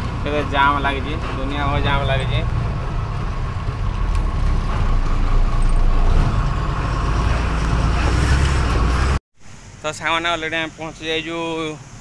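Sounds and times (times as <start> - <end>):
truck engine low drone: 0.0 - 9.2
road noise: 0.0 - 12.0.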